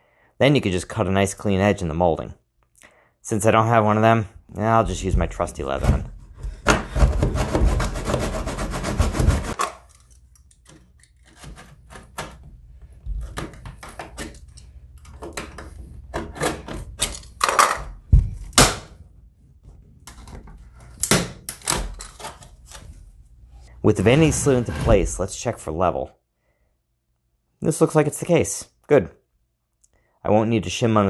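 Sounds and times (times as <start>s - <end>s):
blade scraping wood: 6.9s - 9.6s, 23.9s - 25.3s.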